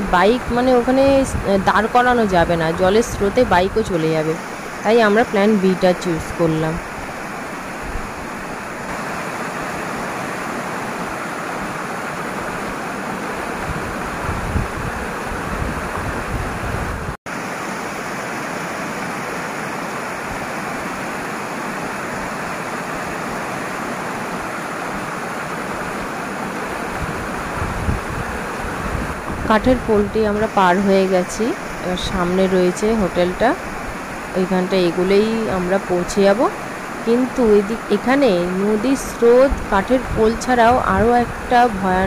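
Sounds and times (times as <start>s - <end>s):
river water rushing: 0.0s - 42.0s.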